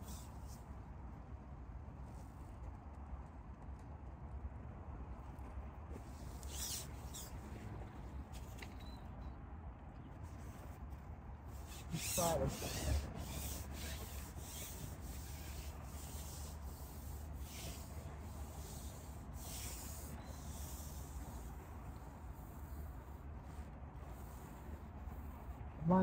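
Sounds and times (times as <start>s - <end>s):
rubbing rustle: 5.9s - 8.6s, 10.2s - 26.0s
squeaky scrape: 6.0s - 9.1s, 18.6s - 21.5s.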